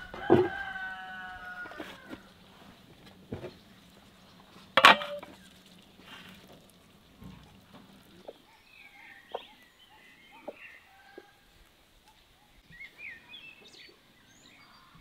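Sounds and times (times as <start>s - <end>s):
small birds chirping: 2.0s - 15.0s
hens clucking softly: 6.1s - 11.4s.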